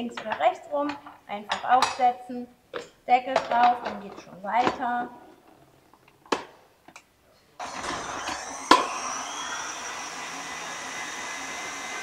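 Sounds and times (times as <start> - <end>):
stand mixer motor whine: 7.6 - 12.0.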